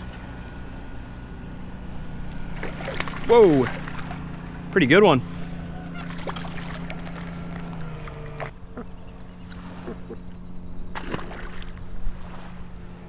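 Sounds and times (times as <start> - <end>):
low motor hum: 0.0 - 13.0
fish splashing at the surface: 2.5 - 4.3, 6.0 - 7.8, 10.9 - 12.6.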